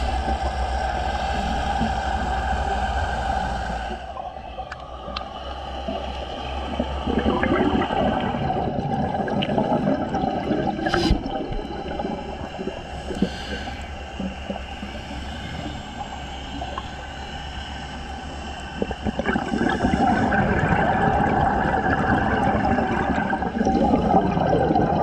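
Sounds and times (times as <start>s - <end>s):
steady low hum: 0.0s - 25.0s
bubbles gurgling underwater: 4.7s - 13.4s, 18.8s - 25.0s.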